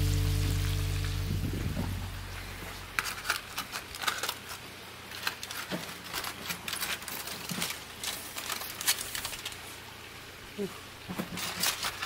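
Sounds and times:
aluminium foil crinkling: 2.6 - 9.9, 11.2 - 12.0.

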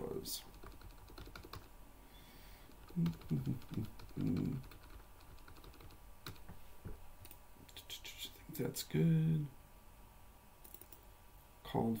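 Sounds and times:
keyboard typing: 0.4 - 1.7, 2.7 - 6.6, 10.6 - 11.0.

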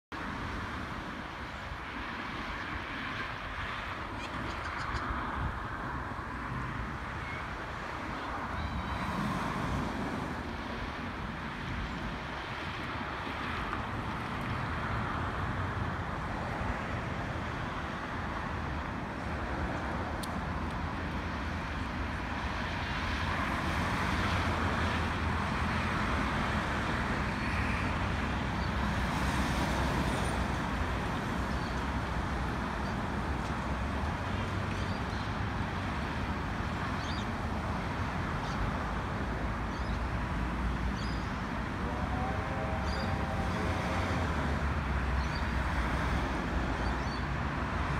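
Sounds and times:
distant steam locomotives rumbling: 41.6 - 44.9.

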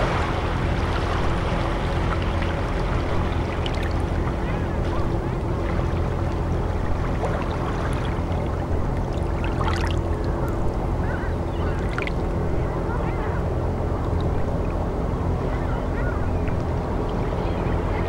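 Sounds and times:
water washing on shore: 0.0 - 10.5
steady low hum: 0.0 - 18.0.

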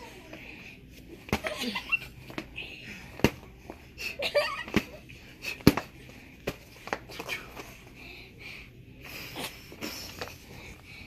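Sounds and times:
boxing gloves knocking: 4.6 - 5.0, 5.6 - 7.1.

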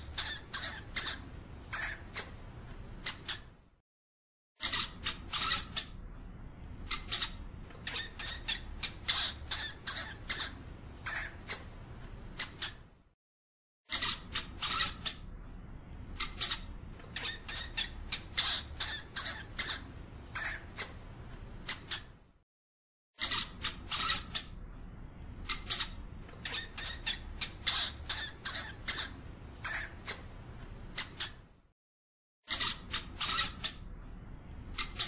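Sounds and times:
hamster high-pitched calls: 0.0 - 2.4, 3.0 - 3.6, 4.6 - 6.0, 6.9 - 11.8, 12.4 - 12.9, 13.9 - 15.3, 16.2 - 21.0, 21.6 - 22.2, 23.2 - 24.6, 25.4 - 31.5, 32.5 - 33.9, 34.7 - 35.0.

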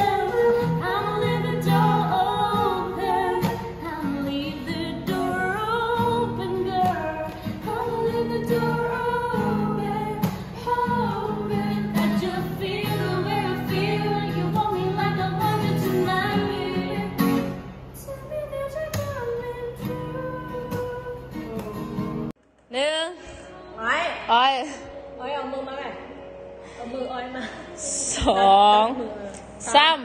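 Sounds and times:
acoustic guitar strumming: 0.0 - 22.3
woman singing: 0.0 - 22.3.

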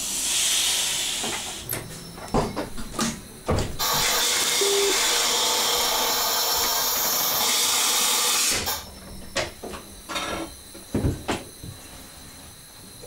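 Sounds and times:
compressed air hissing: 0.0 - 1.7.

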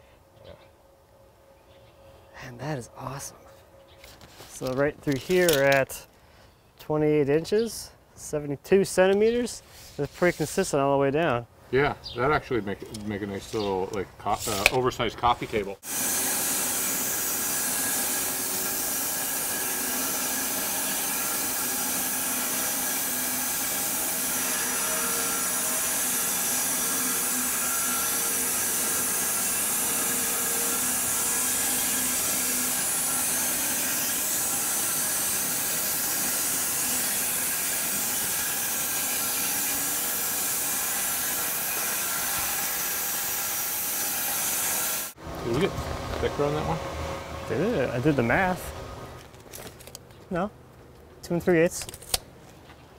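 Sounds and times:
faint hum of sawmill: 12.3 - 52.9
bandsaw blade hissing through log: 15.8 - 45.2.

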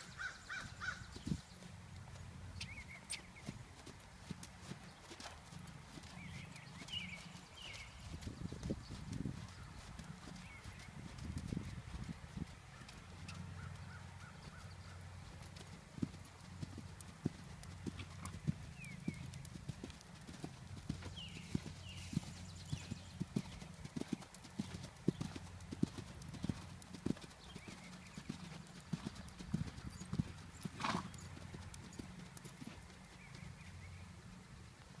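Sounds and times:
horse hoofbeats on sand: 15.4 - 33.6.

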